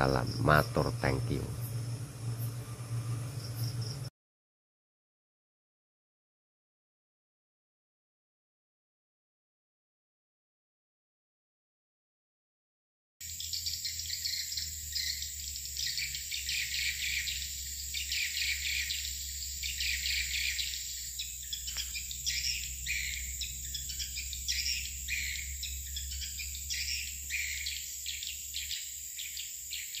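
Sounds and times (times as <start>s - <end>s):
high-pitched whine: 0.0s - 4.1s, 13.3s - 30.0s
low hum: 0.0s - 4.1s, 13.3s - 30.0s.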